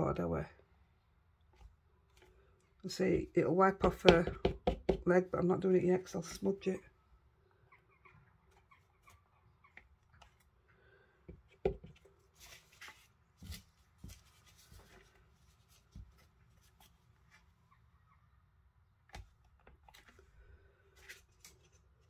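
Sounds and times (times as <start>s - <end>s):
paper sliding and rustling: 12.3s - 17.0s.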